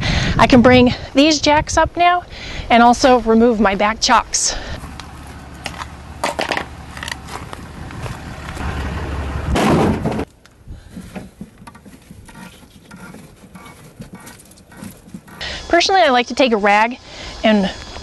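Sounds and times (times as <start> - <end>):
low steady rumble: 0.3 - 17.2
wheel chocks clattering into truck bed: 5.4 - 7.5
plastic wheel chocks knocking: 10.9 - 15.4.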